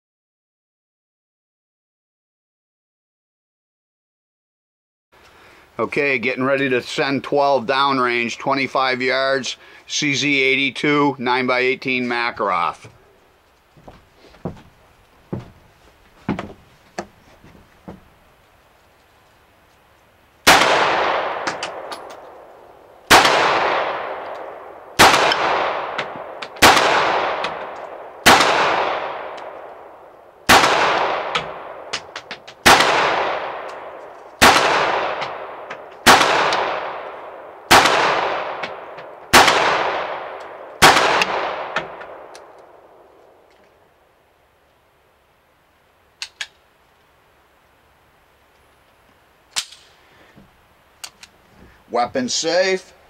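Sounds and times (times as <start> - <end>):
pistol shots echoing: 20.4 - 43.0.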